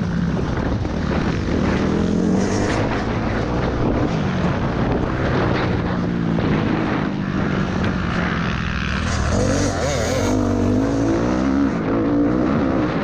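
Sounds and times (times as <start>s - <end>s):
wind noise on microphone: 0.0s - 13.0s
motocross engine revving: 8.9s - 12.8s.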